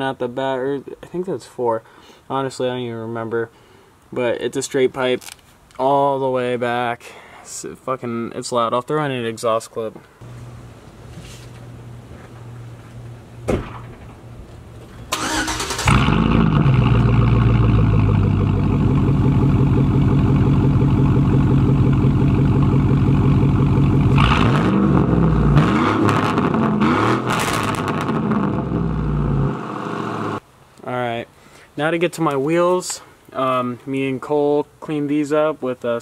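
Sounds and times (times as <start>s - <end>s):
engine cranking and starting: 15.1s - 18.2s
engine revving: 15.2s - 30.4s
engine idling loudly: 15.9s - 25.5s.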